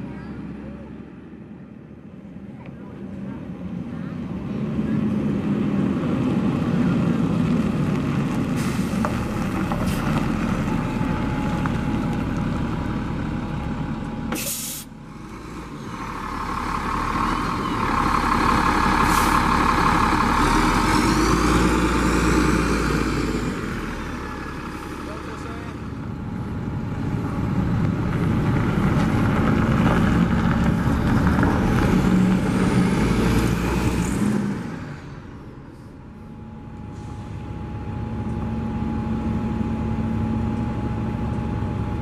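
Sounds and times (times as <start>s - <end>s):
diesel bus engine: 0.0s - 42.0s
air brake hiss: 14.4s - 14.9s, 36.9s - 37.4s.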